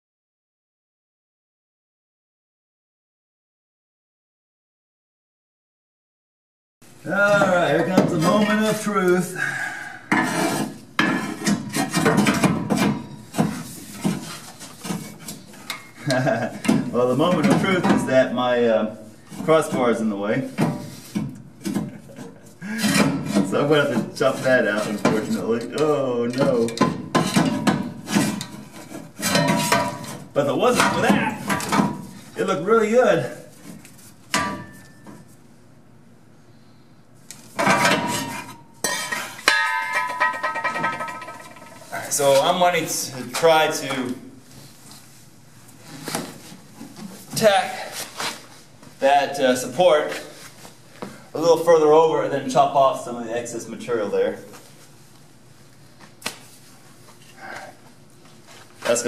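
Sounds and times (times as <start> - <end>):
metal scraping and rubbing: 10.1 - 12.2
steel tube clanking on metal frame: 29.2 - 30.2, 37.6 - 42.1
sharp metal knocks: 39.4 - 41.8.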